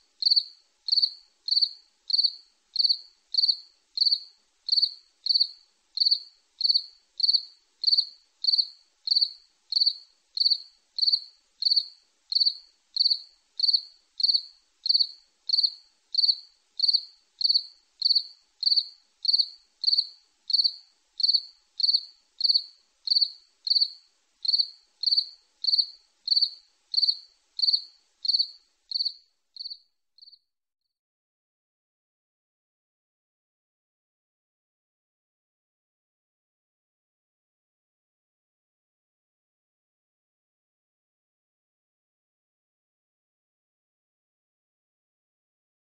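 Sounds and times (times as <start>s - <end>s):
insect chirping: 0.2s - 30.5s.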